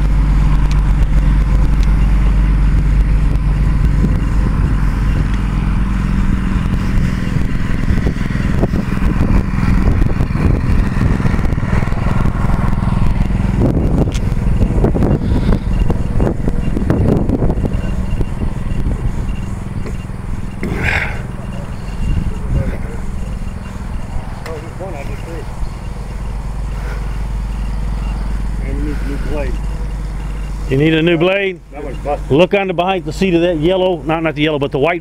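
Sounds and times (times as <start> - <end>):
sharp clicks and crackles: 0.0 - 5.6, 6.2 - 28.4
engine running steadily: 0.0 - 35.0.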